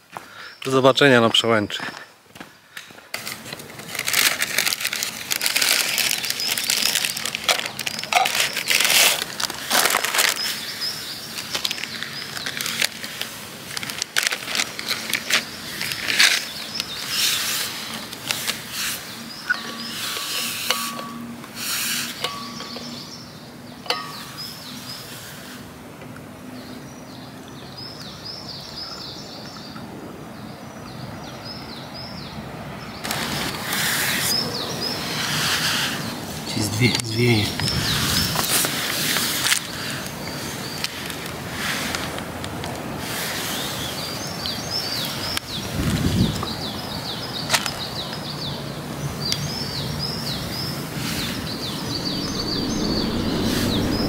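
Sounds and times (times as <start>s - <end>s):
footsteps on forest path: 0.0s - 0.5s, 1.2s - 4.4s
small birds calling: 5.8s - 13.0s, 14.8s - 25.5s, 26.5s - 41.3s, 43.4s - 54.0s.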